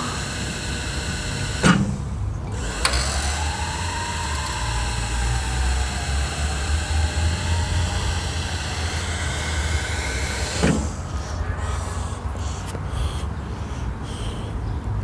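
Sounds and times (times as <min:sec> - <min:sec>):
electric water pump whining: 0:00.0 - 0:11.2.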